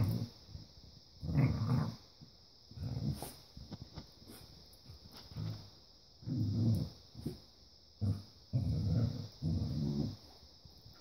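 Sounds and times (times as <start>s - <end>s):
dogs growling in play: 0.0s - 0.4s, 1.2s - 2.1s, 2.7s - 3.4s, 5.2s - 7.4s, 8.0s - 10.4s.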